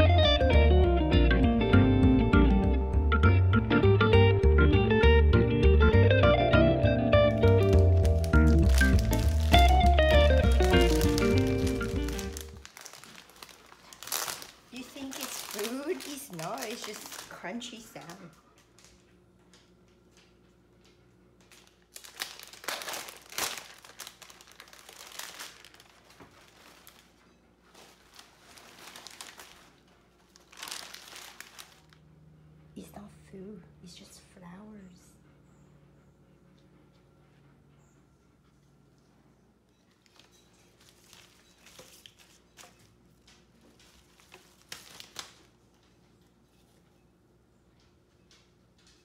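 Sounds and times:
cellophane wrap crinkling: 0:07.3 - 0:19.1, 0:21.4 - 0:32.1, 0:40.0 - 0:45.9
flower stems and leaves rustling: 0:07.5 - 0:18.3, 0:21.6 - 0:32.0, 0:40.0 - 0:42.9.

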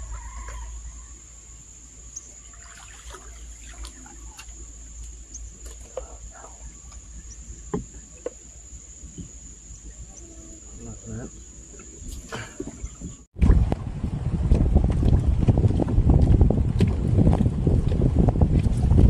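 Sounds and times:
high-pitched insect drone: 0:00.0 - 0:12.3.

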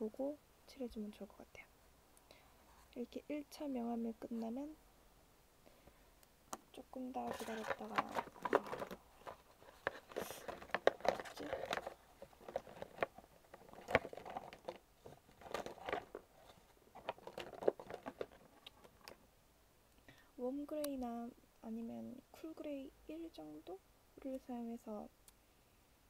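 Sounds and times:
paper rustling: 0:07.2 - 0:19.2.

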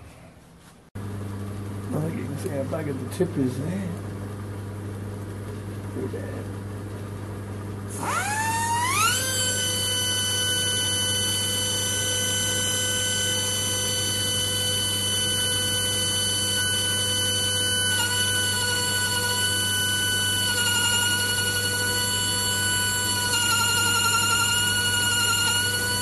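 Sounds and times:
steady low hum: 0:00.0 - 0:26.0
die grinder whining: 0:07.8 - 0:26.0.

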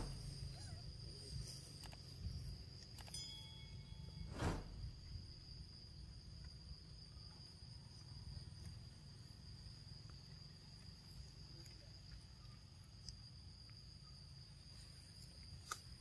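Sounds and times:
high-pitched insect drone: 0:00.0 - 0:12.7.

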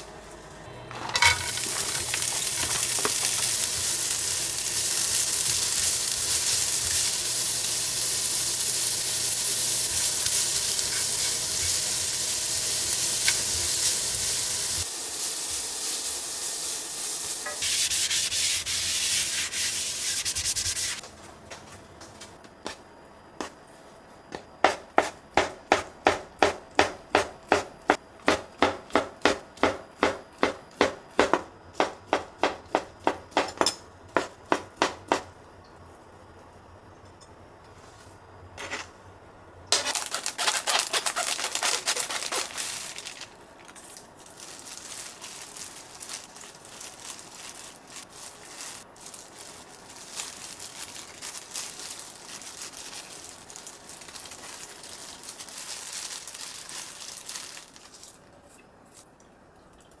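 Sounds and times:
plastic rustling: 0:01.0 - 0:12.0, 0:39.7 - 0:58.4
plastic gloves crinkling: 0:01.2 - 0:14.9, 0:39.7 - 0:58.4.

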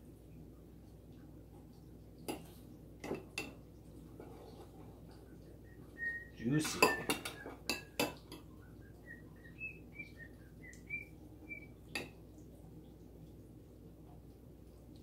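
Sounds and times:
utensil clinking against glass bowl: 0:06.6 - 0:08.5
faint high chirps: 0:08.6 - 0:11.8.

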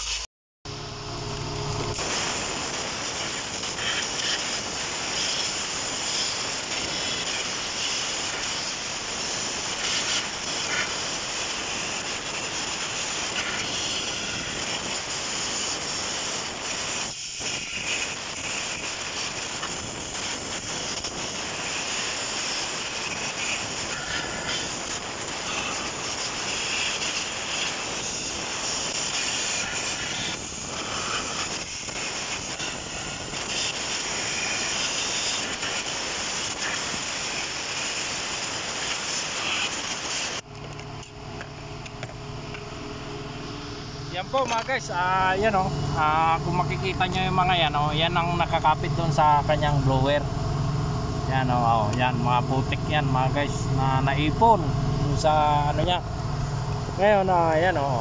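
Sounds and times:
compressed air hissing: 0:01.9 - 0:40.4.

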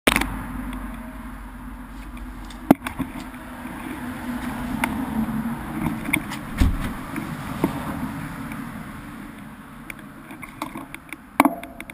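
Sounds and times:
vehicle road noise rumble: 0:00.1 - 0:11.9
knocks and rattles: 0:05.8 - 0:07.2.

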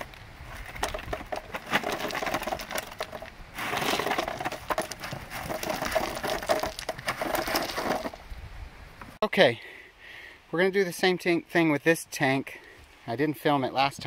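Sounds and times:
stones clattering into trench: 0:00.0 - 0:08.3.

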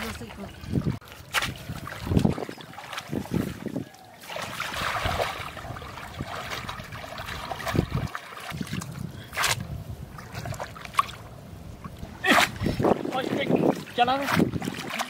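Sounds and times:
muddy water sloshing and splashing: 0:00.0 - 0:15.0.

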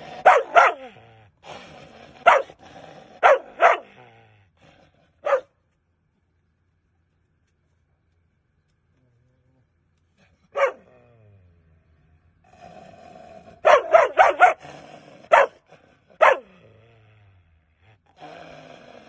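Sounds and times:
dog barking aggressively: 0:00.0 - 0:01.0, 0:02.1 - 0:04.0, 0:05.2 - 0:05.5, 0:10.5 - 0:10.9, 0:13.6 - 0:16.6.

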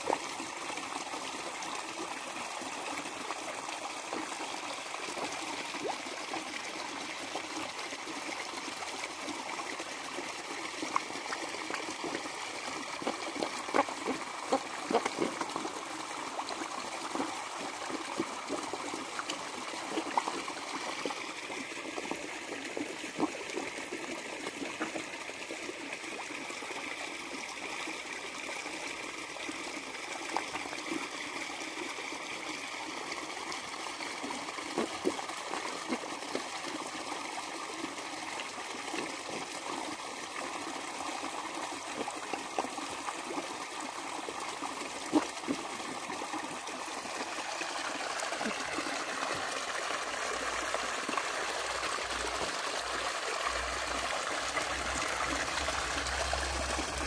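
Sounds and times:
trickle of running water: 0:00.0 - 0:57.0
fish slurping food at water surface: 0:12.0 - 0:21.2, 0:47.9 - 0:57.0.

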